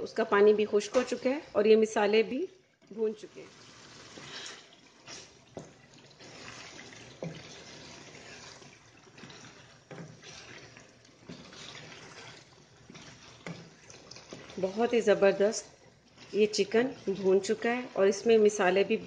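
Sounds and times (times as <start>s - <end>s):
faint sizzle of frying: 0.0s - 19.0s
spatula scraping and knocking pan: 5.2s - 18.5s.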